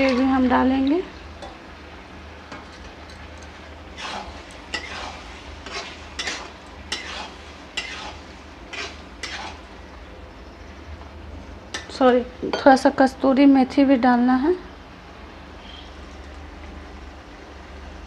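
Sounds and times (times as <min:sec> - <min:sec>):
spatula scraping a steel pan: 0:04.0 - 0:09.6.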